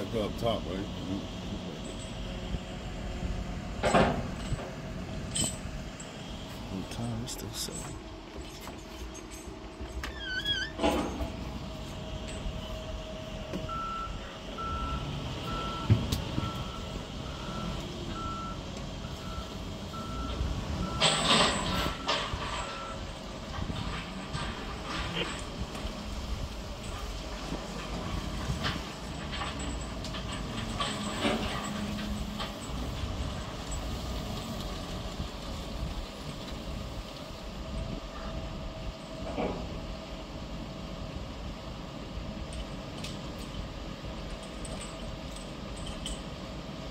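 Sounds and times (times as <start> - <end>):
diesel engines running: 0.0 - 46.9
sharp metal clanks: 3.8 - 4.7
reversing alarm beeping: 13.6 - 23.1.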